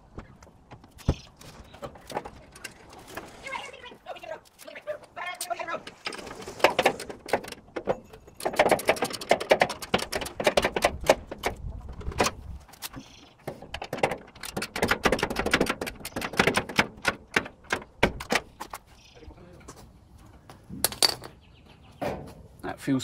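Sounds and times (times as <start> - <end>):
metallic clicks and rattles of tools: 6.0 - 13.0, 13.6 - 17.9.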